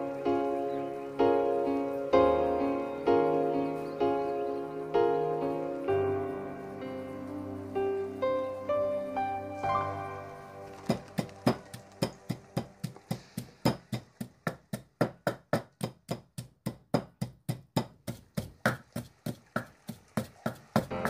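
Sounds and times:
wooden pestle pounding in mortar: 11.2s - 20.9s.

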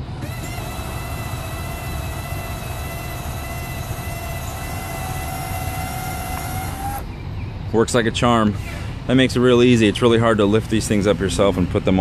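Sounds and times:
electric jack motor whine: 0.0s - 7.1s.

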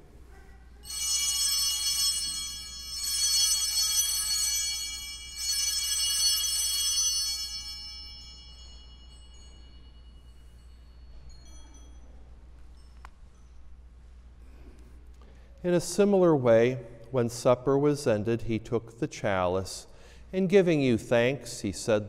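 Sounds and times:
altar bells ringing: 0.8s - 13.9s.

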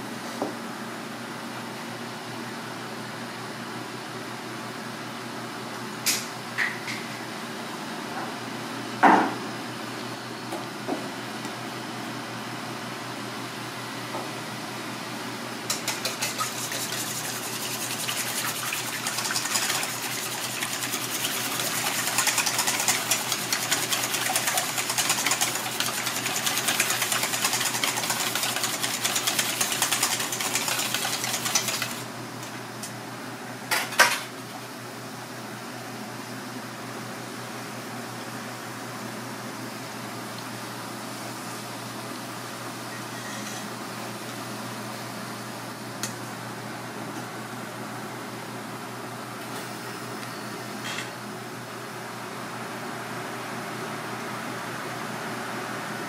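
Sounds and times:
whisk clinking in metal bowl: 15.7s - 32.0s.

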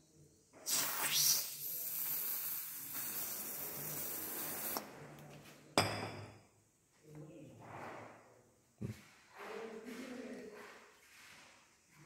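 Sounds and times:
aerosol can spraying: 0.7s - 4.8s.

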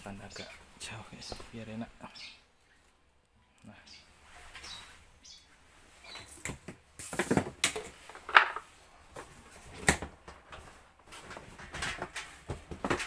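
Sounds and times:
plastic hose knocking and scraping: 6.4s - 13.0s.

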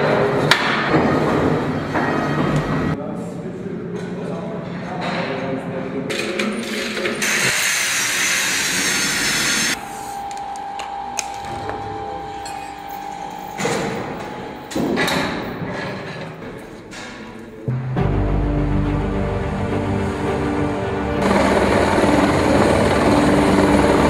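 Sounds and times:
power tool hissing burst: 7.2s - 9.8s.

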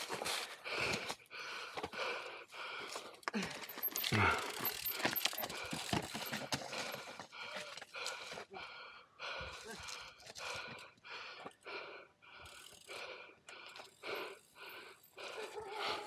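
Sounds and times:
bike rattling over stones: 3.2s - 7.9s.

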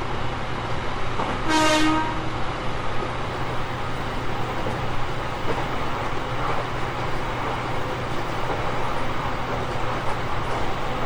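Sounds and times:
electric train running: 3.0s - 11.0s.

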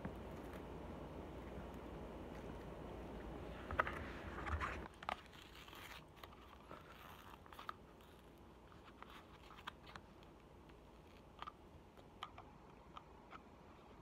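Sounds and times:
plastic wrapper crinkling and tearing: 4.8s - 11.5s.

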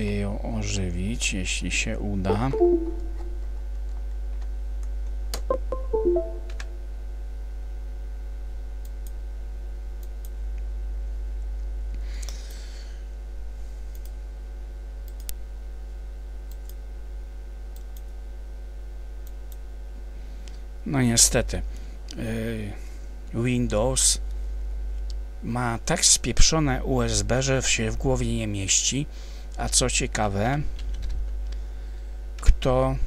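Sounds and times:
device-connect chimes: 2.3s - 3.4s, 5.5s - 6.8s
steady electrical hum: 7.7s - 33.0s.

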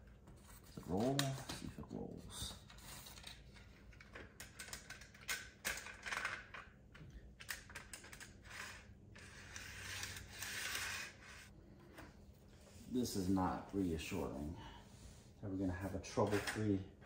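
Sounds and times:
plastic track pieces clicking: 3.1s - 11.4s.

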